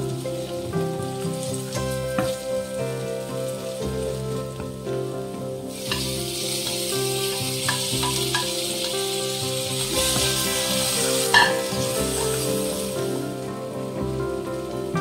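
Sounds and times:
background music: 0.0 - 15.0
food sizzling in hot oil: 5.6 - 15.0.

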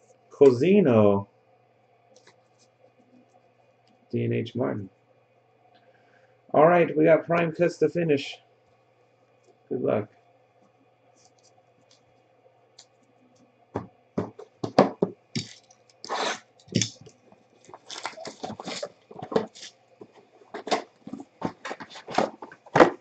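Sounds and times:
cardboard and wrapping scrapes and tears: 16.0 - 16.5, 17.7 - 19.7, 20.5 - 23.0.

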